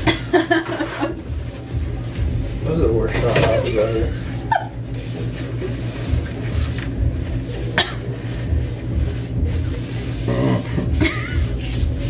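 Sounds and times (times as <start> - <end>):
steady low hum: 0.0 - 12.0
person coughing: 7.8 - 8.2.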